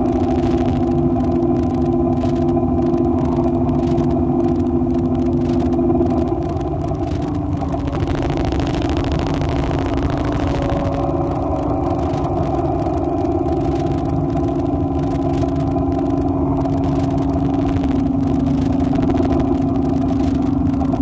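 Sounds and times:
low drone with held tones: 0:00.0 - 0:21.0.

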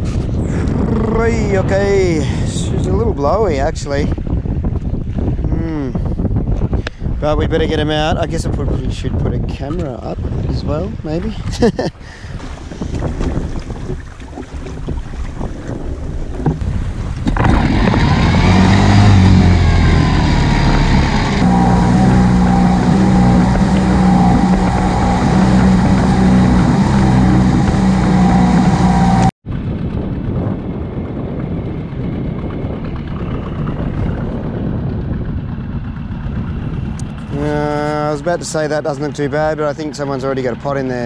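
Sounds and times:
outboard motor revving: 0:11.2 - 0:30.3, 0:31.8 - 0:41.0
even rushing noise: 0:15.6 - 0:29.3.

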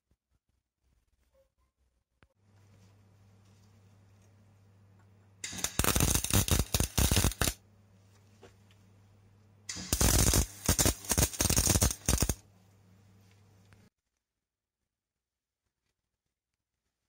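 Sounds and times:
welding arc crackling: 0:05.4 - 0:07.6, 0:09.7 - 0:12.4.

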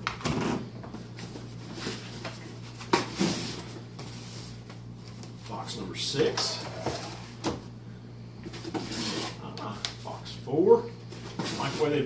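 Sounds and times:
cardboard rustling and scraping: 0:01.0 - 0:05.4, 0:08.4 - 0:09.6, 0:11.1 - 0:12.0.

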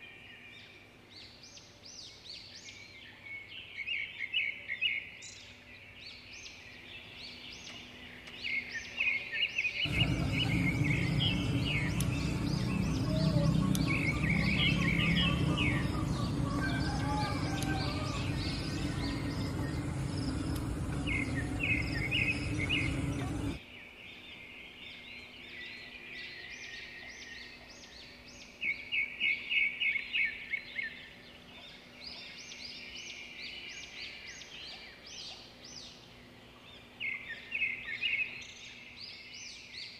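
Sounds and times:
birds chirping: 0:09.7 - 0:23.6
steady rushing noise: 0:09.9 - 0:23.6.

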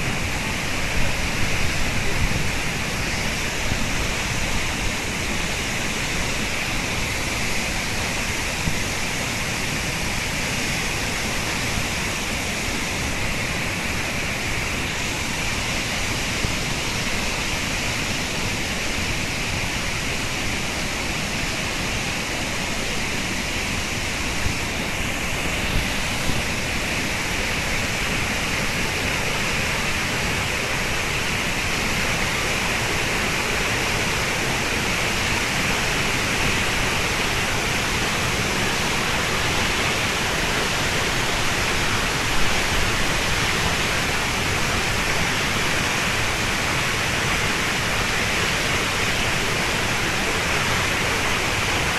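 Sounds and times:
waterfall rushing: 0:00.0 - 0:51.9.

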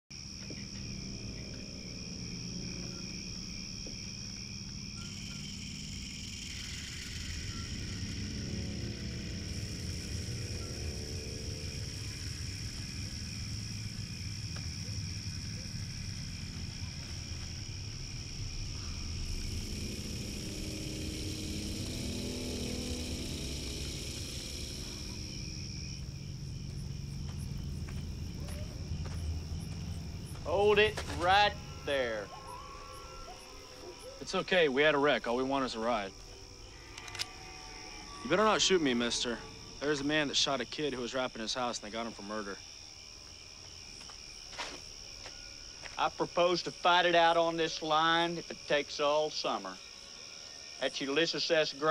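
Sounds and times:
night insects chirring: 0:00.1 - 0:51.9
low steady drone: 0:05.0 - 0:40.6.

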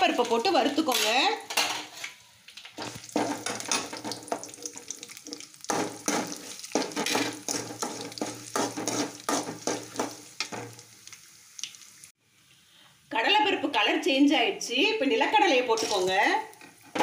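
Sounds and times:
oil sizzling in a pan: 0:02.2 - 0:12.2, 0:15.2 - 0:17.0
metal ladle scraping a pan: 0:02.8 - 0:10.8.

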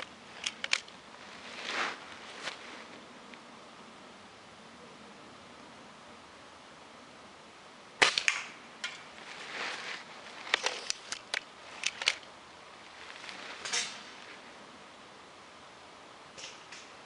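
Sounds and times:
rifle handling clicks and rustling: 0:00.0 - 0:01.4, 0:08.0 - 0:14.3
air rifle firing: 0:08.0 - 0:08.5.

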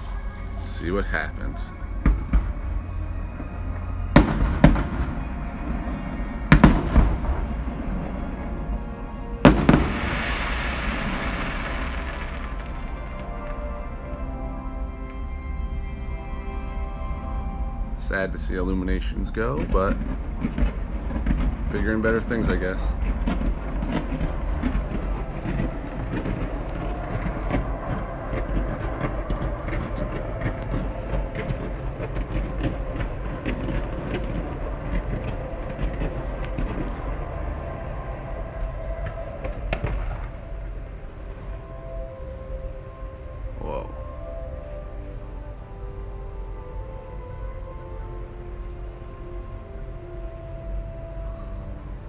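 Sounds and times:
fireworks bursting with bangs: 0:00.0 - 0:13.9, 0:19.0 - 0:42.8
faint show music: 0:00.0 - 0:52.0
steady hiss: 0:00.0 - 0:52.0.

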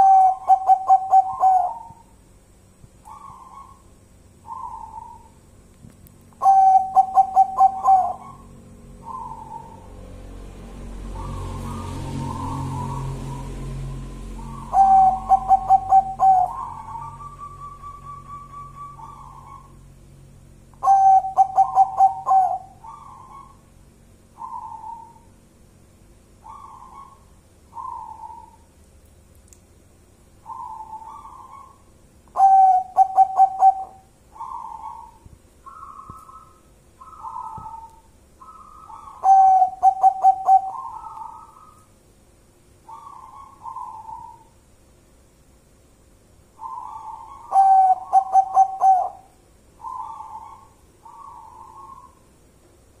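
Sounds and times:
dove cooing: 0:00.0 - 0:02.1, 0:03.0 - 0:05.4, 0:06.4 - 0:10.0, 0:14.4 - 0:19.8, 0:20.8 - 0:23.6, 0:24.4 - 0:25.3, 0:26.4 - 0:28.7, 0:30.4 - 0:41.8, 0:42.9 - 0:44.5, 0:46.6 - 0:52.2.

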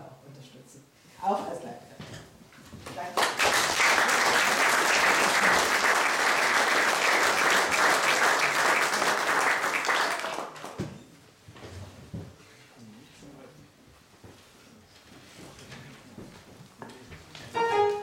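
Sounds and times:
audience applauding: 0:03.2 - 0:10.8.

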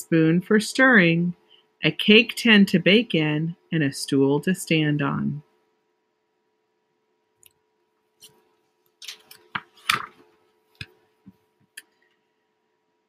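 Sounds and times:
paper page rustling: 0:09.0 - 0:10.2.

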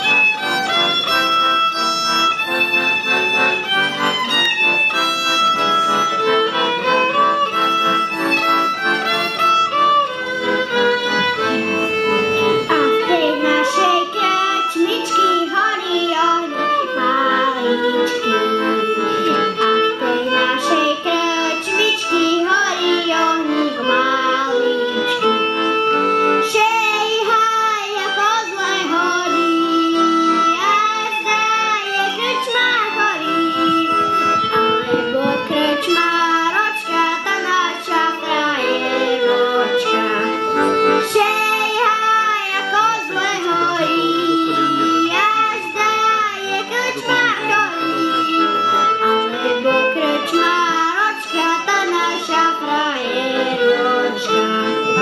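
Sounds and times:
accordion: 0:00.0 - 0:55.0
violin: 0:00.0 - 0:55.0
child singing: 0:12.7 - 0:25.4, 0:26.4 - 0:55.0.

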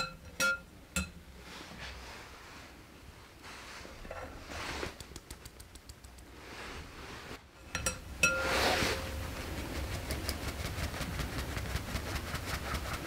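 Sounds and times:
utensils brushing and swishing: 0:06.3 - 0:13.0.

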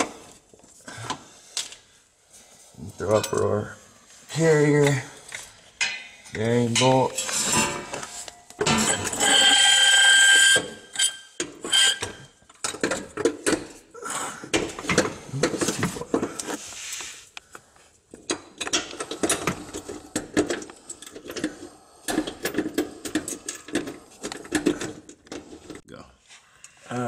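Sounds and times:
metal bolts clinking and tapping: 0:05.3 - 0:09.2, 0:18.1 - 0:21.5.

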